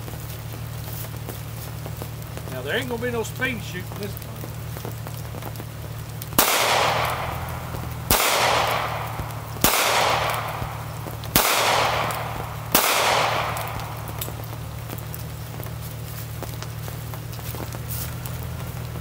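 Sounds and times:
pistol shots with echo: 0:06.4 - 0:14.6.

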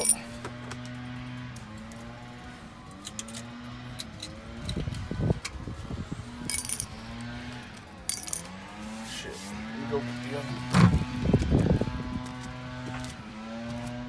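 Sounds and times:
sharp metallic clinks: 0:00.0 - 0:00.3, 0:06.5 - 0:07.0, 0:08.1 - 0:08.6
metal parts knocking: 0:06.5 - 0:06.9, 0:08.1 - 0:08.5.

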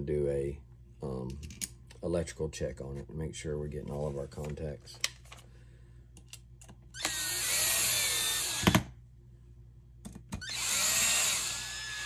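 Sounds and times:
power drill running: 0:07.0 - 0:08.8, 0:10.4 - 0:12.0.

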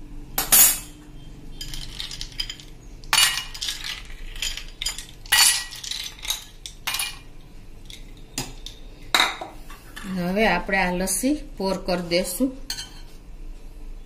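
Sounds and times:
ice cubes clinking into glasses: 0:01.6 - 0:07.2.

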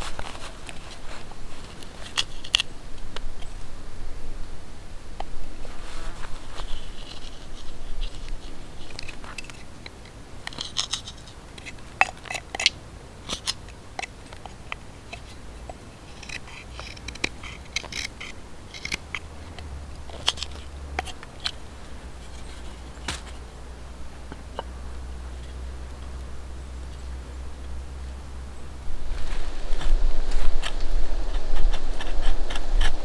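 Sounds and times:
knife scraping wood: 0:00.0 - 0:02.7, 0:05.7 - 0:23.5, 0:29.8 - 0:33.0.

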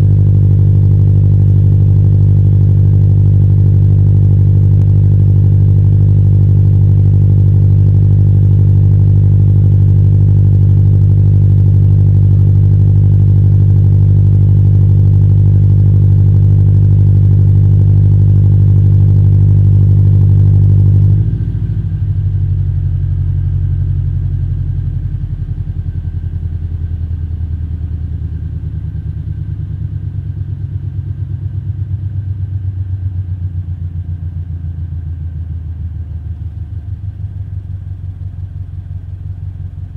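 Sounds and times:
car engine exhaust revving: 0:00.0 - 0:26.2.

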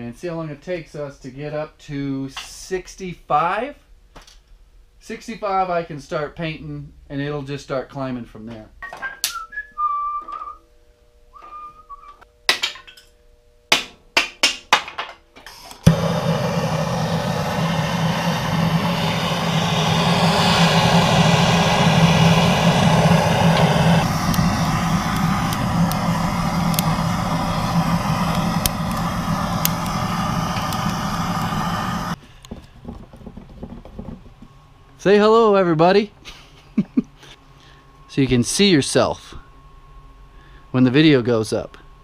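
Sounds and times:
person whistling: 0:08.9 - 0:10.6, 0:11.3 - 0:12.2
torch flame hissing: 0:15.7 - 0:32.2
kindling crackles: 0:15.8 - 0:32.2
torch lighting pop: 0:15.8 - 0:32.2.

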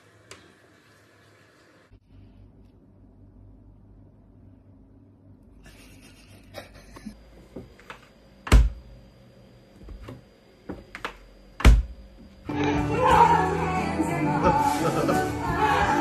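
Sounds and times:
door thudding against frame: 0:08.5 - 0:08.8, 0:11.6 - 0:12.0.

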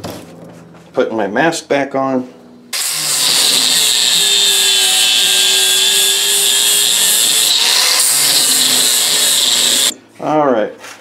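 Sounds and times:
angle grinder grinding metal: 0:02.7 - 0:10.0.

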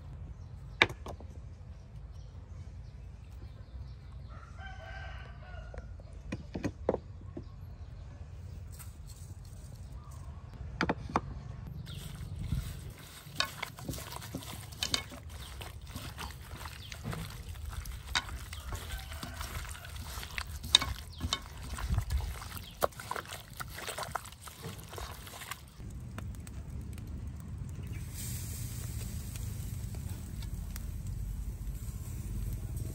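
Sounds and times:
wet squelching of mixing meat: 0:11.8 - 0:25.8
meat hissing on a grill: 0:27.9 - 0:32.9.

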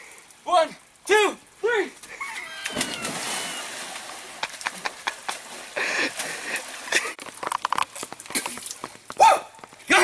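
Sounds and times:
big splash into puddle: 0:02.6 - 0:06.9
sloshing and splashing in water: 0:02.6 - 0:07.2.

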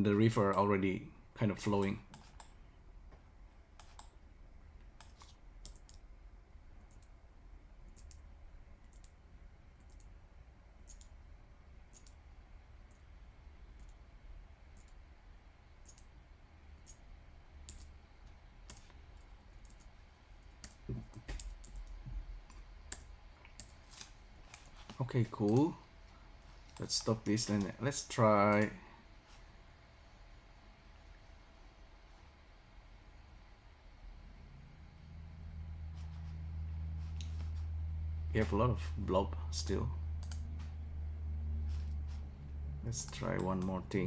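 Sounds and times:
low steady hum: 0:00.0 - 0:44.0
mouse and keyboard clicks: 0:03.8 - 0:04.1.

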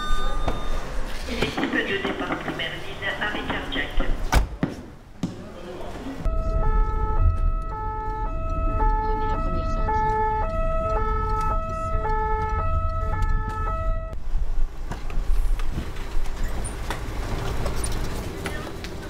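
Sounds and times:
vehicle engine and road rumble: 0:06.0 - 0:19.0
two-tone emergency siren: 0:06.3 - 0:14.2.

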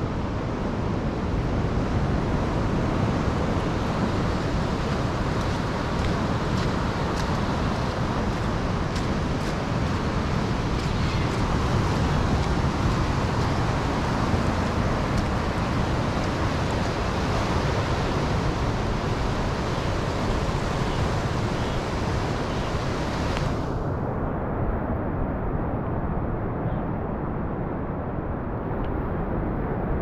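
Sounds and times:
ocean surf breaking on rocks: 0:00.0 - 0:23.8
wind on microphone: 0:00.0 - 0:30.0.

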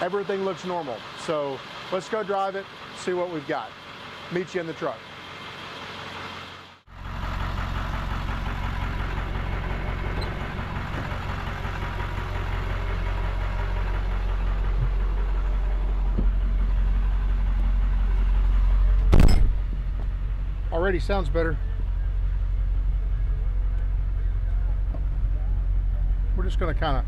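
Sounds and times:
man talking: 0:00.0 - 0:03.7, 0:04.3 - 0:05.0, 0:20.7 - 0:21.6, 0:26.3 - 0:27.0
diesel truck engine running: 0:00.0 - 0:27.0
loud thump: 0:19.1 - 0:19.8.

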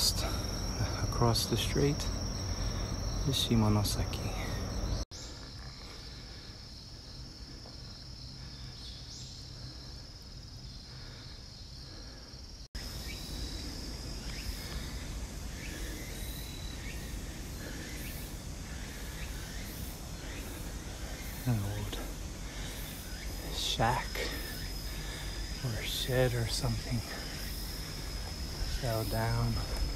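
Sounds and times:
insects droning: 0:00.0 - 0:29.9
pulsing high insect buzz: 0:00.0 - 0:29.9.

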